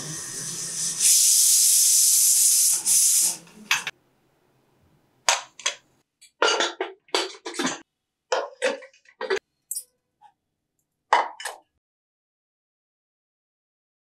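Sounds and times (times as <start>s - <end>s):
pressure cooker steam hissing: 0.0s - 3.9s
metal pot and lid clanking: 6.4s - 9.8s.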